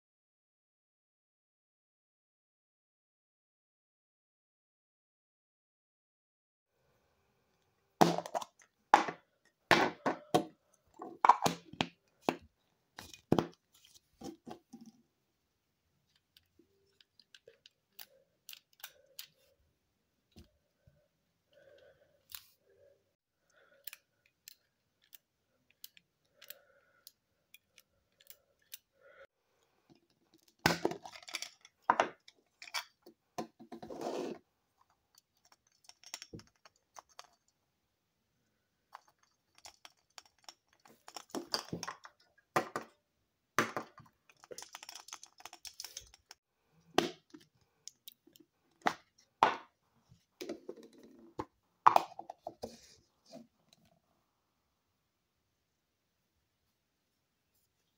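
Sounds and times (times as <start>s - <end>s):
plastic toys clicking and clattering: 16.1s - 19.5s, 29.9s - 33.8s, 34.8s - 37.6s, 38.9s - 42.9s, 43.6s - 46.4s.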